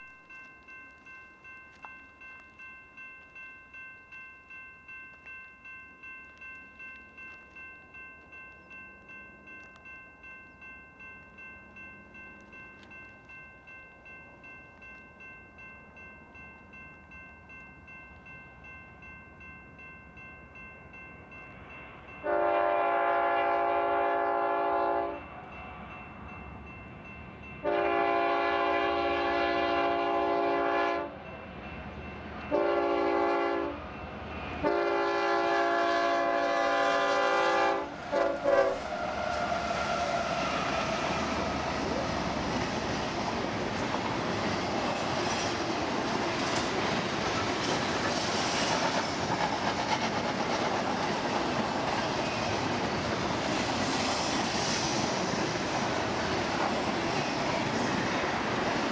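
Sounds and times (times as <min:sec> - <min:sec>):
crossing bell ringing: 0:00.0 - 0:39.8
locomotive air horn: 0:22.2 - 0:25.2, 0:27.6 - 0:31.2, 0:32.5 - 0:33.8, 0:34.6 - 0:40.6.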